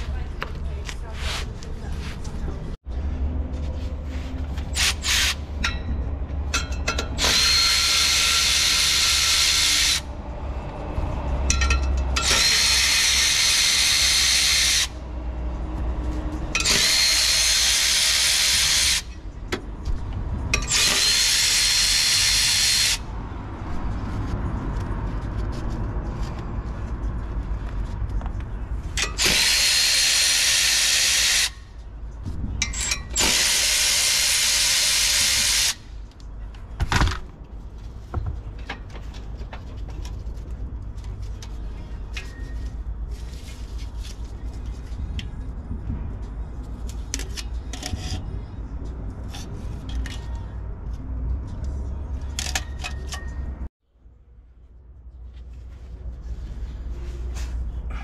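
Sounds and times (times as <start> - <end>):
power ratchet whine: 7.2 - 10.1, 12.2 - 15.0, 16.6 - 19.1, 20.6 - 23.0, 29.0 - 31.7, 32.7 - 35.9.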